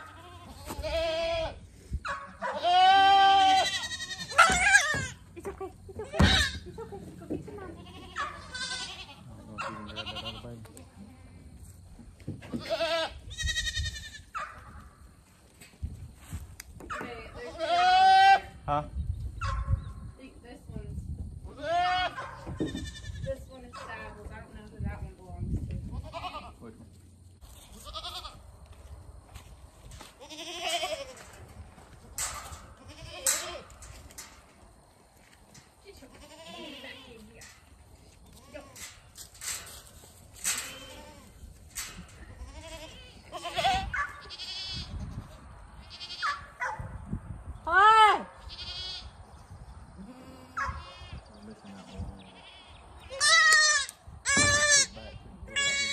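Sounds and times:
goats bleating: 0.0 - 1.6, 2.4 - 5.3, 7.6 - 11.4, 12.5 - 14.3, 17.4 - 18.5, 21.5 - 23.3, 27.6 - 28.4, 30.2 - 31.3, 32.2 - 33.8, 36.1 - 37.6, 40.4 - 45.0, 45.8 - 46.4, 47.8 - 49.1, 50.0 - 55.9.

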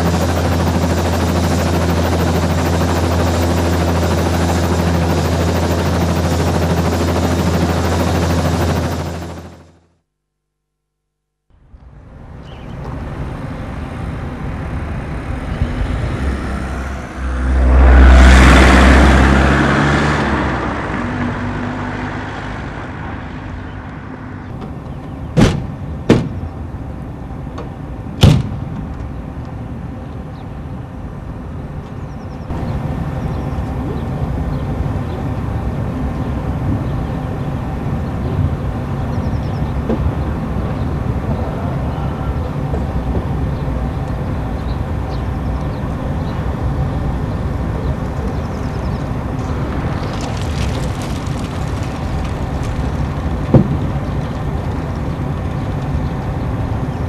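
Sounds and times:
vehicle passing low rumble: 11.6 - 24.8, 28.5 - 57.0.

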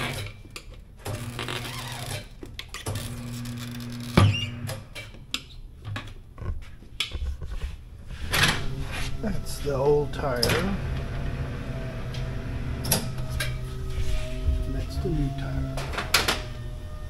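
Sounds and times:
electric turntable motor humming: 8.8 - 17.0.

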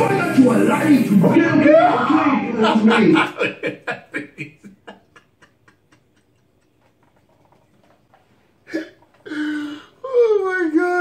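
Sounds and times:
man laughing hard: 2.6 - 7.0.

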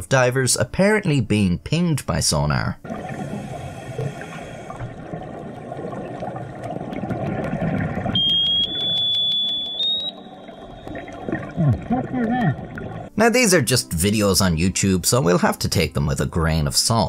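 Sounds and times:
low rush of underwater noise: 2.8 - 13.2
high-pitched sonar tone: 8.2 - 11.8.

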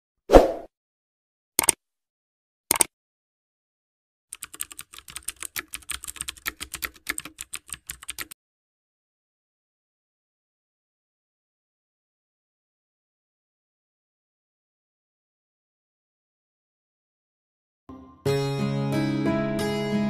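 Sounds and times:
keyboard keystrokes: 4.3 - 8.4.

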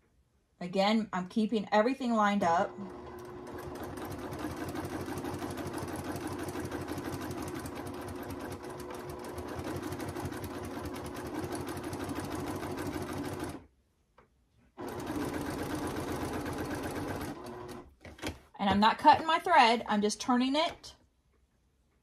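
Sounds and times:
sewing machine stitching: 2.4 - 13.6, 14.8 - 18.4.

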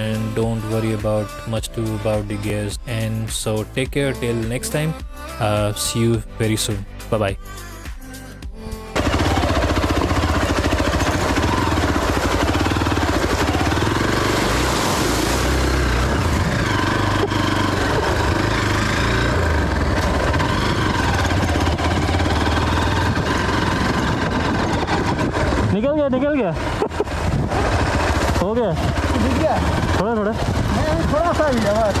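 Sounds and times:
motorcycle engine running: 8.9 - 32.0
wind noise: 22.8 - 32.0.

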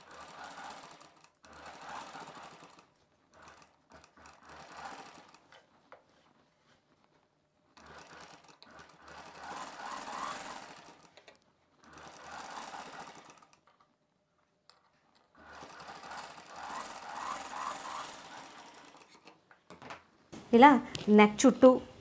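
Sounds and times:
sewing machine stitching: 0.0 - 5.9, 7.7 - 13.9, 15.2 - 19.4.

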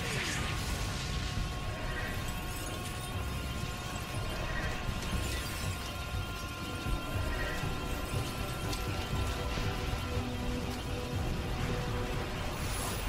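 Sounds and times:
energy beam sound effect: 0.0 - 6.1
music: 0.0 - 13.0.

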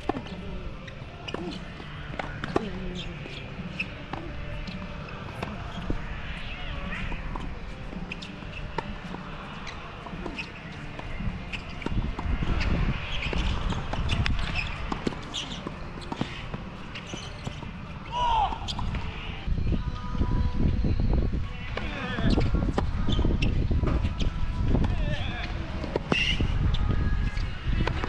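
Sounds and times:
tennis ball bouncing: 1.2 - 17.7.

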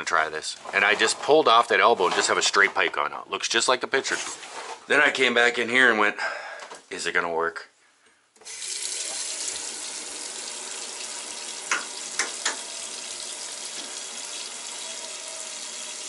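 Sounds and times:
water running into sink: 8.4 - 16.0.

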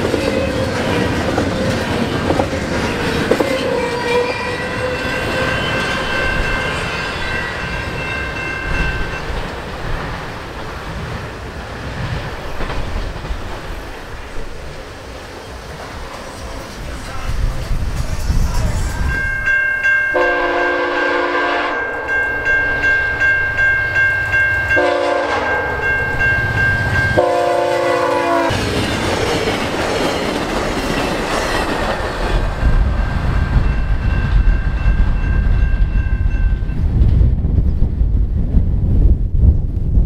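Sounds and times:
train wheels clattering on rails: 0.0 - 19.6, 28.1 - 37.3
train horn blasts: 20.1 - 22.3, 24.7 - 25.9, 27.1 - 28.6.

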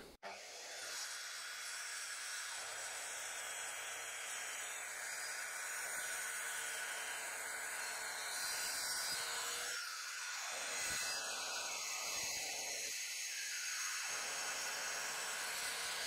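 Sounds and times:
circular saw cutting plastic: 0.0 - 16.0.

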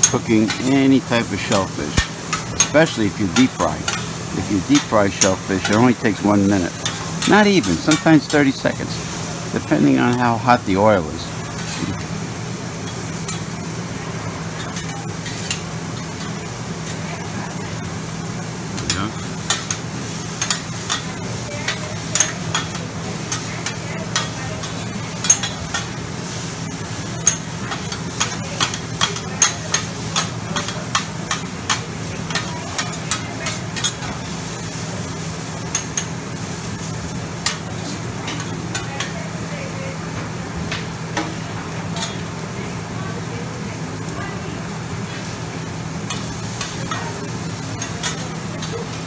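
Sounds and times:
food sizzling: 0.0 - 49.0
metal spatulas clacking on griddle: 20.4 - 25.9, 27.2 - 34.1, 42.0 - 42.2, 47.8 - 48.9.

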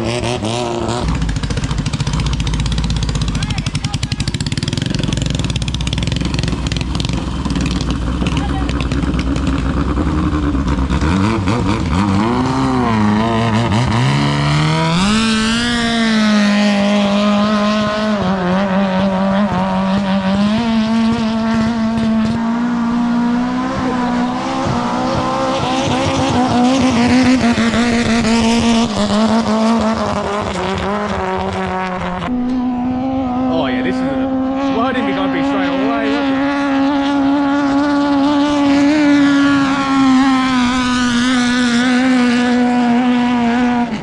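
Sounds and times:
boat engine revving: 0.0 - 44.0.

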